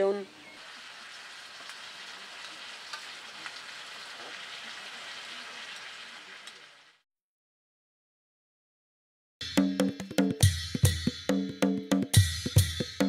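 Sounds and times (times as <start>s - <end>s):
kernels sizzling in a pan: 0.3s - 7.0s.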